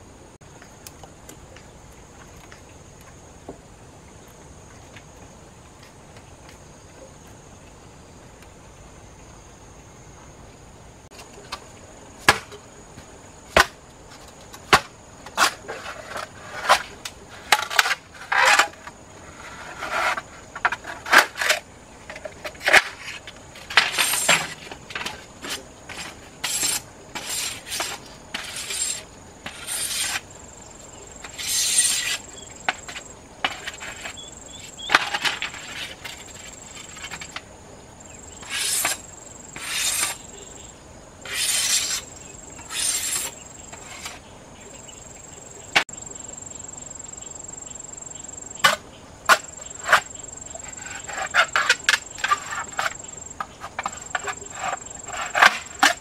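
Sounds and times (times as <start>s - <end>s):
insect drone: 0.0s - 56.0s
machete shaving bamboo: 22.5s - 30.3s, 31.2s - 37.4s, 38.4s - 40.2s, 41.2s - 44.2s.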